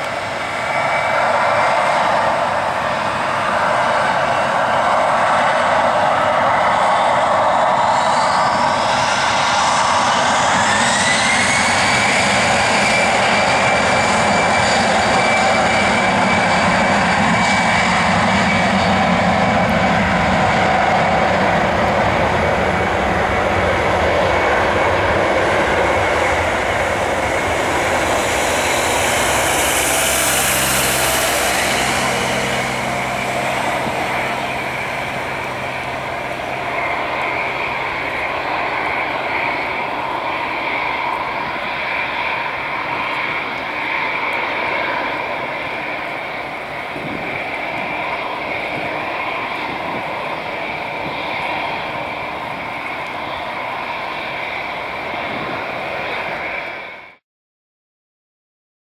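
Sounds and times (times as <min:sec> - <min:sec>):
jet engines spooling up whine: 0:00.0 - 0:57.2
loud jet noise: 0:00.0 - 0:57.2.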